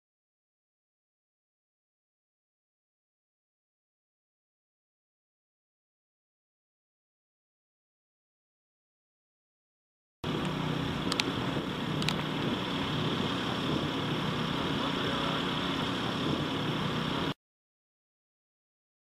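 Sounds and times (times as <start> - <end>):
mechanical hum with hiss: 10.3 - 17.4.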